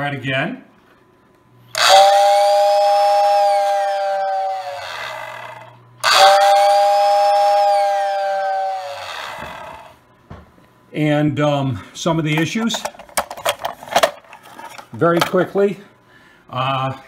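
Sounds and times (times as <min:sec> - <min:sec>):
toy train whistle hooting: 0:01.7 - 0:09.9
motor winding down whine: 0:01.7 - 0:10.0.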